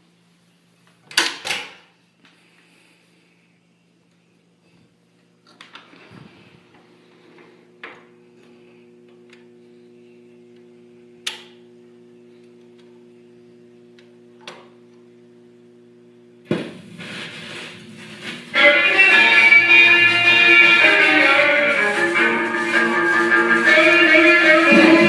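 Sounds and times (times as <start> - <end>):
amplifier hum: 6.4 - 22.6, 23.6 - 25.0
music from record player: 16.6 - 25.0.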